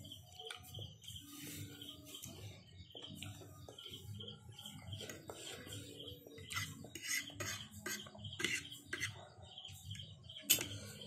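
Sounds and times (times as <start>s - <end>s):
cutlery clinking on a dish: 10.4s - 10.9s.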